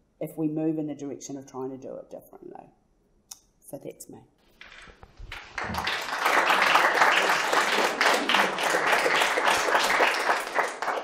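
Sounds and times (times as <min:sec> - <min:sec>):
audience applause: 0:05.2 - 0:11.0.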